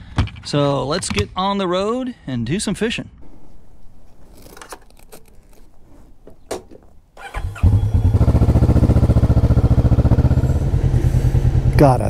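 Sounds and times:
motorcycle engine cranking: 0:04.2 - 0:10.4
motorcycle engine idling: 0:07.2 - 0:12.0.

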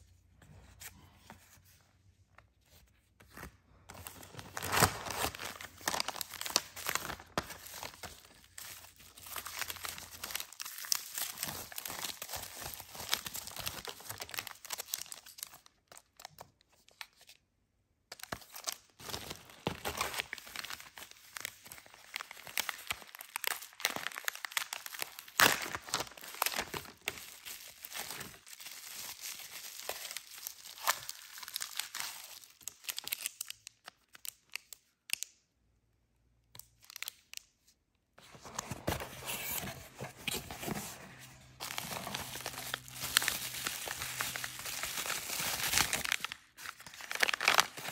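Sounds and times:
bubble wrap and paper crinkling: 0:02.7 - 0:17.3, 0:18.2 - 0:35.2, 0:38.2 - 0:47.9.

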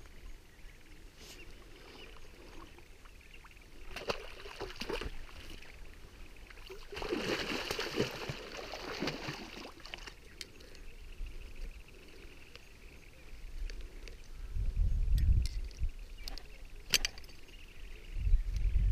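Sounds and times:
fish splashing in shallow water: 0:01.5 - 0:10.9.

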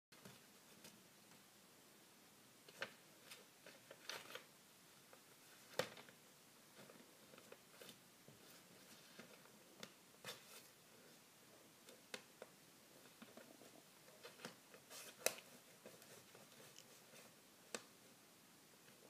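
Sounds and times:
paper rustling: 0:02.7 - 0:04.5, 0:05.2 - 0:11.2, 0:13.0 - 0:17.8.

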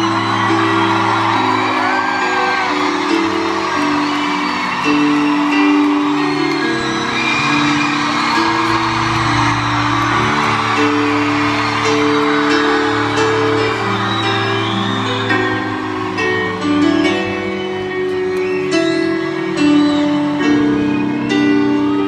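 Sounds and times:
person whooping: 0:00.0 - 0:16.4
crowd cheering: 0:00.0 - 0:22.0
live band keyboard chords: 0:00.0 - 0:22.0.

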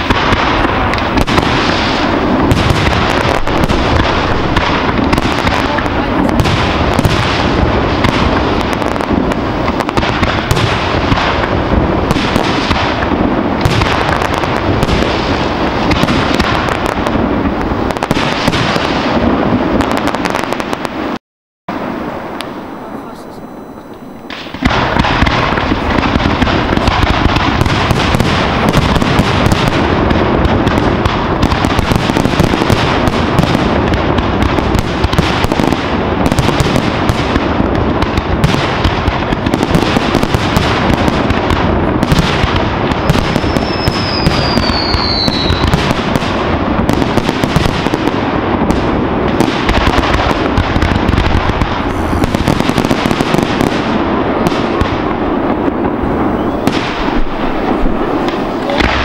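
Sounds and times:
firework bursts and crackling: 0:00.0 - 0:59.0
falling firework whistle: 0:21.7 - 0:26.0, 0:43.0 - 0:46.2, 0:51.6 - 0:53.8, 0:55.6 - 0:59.0.

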